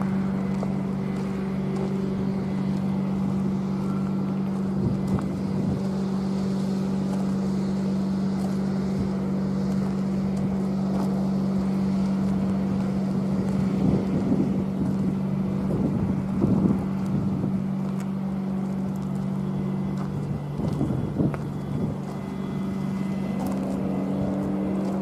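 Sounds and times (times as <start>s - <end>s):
engine droning: 0.0s - 25.0s
wind noise on microphone: 1.0s - 6.7s, 11.4s - 18.6s, 19.6s - 25.0s.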